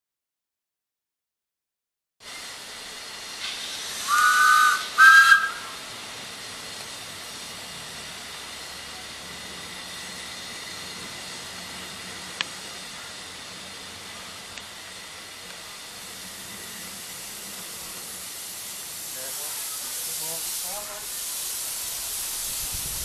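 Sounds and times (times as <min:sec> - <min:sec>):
steam hissing: 0:02.2 - 0:23.0
steam whistle blasts: 0:03.9 - 0:05.9.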